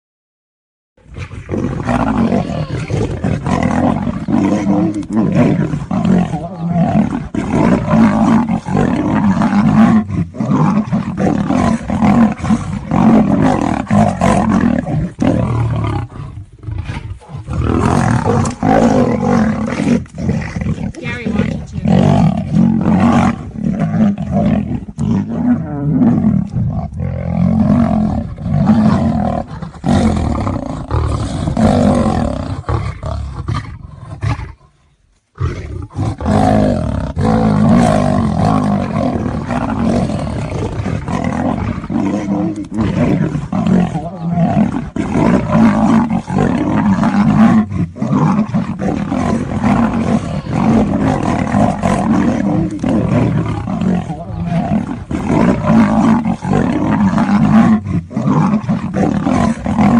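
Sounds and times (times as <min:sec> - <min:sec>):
big cats roaring and growling: 0:01.0 - 0:34.8, 0:35.4 - 0:59.9.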